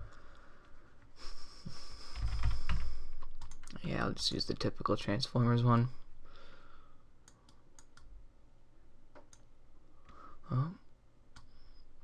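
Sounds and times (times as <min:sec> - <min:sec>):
man saying hm: 0:10.5 - 0:10.9.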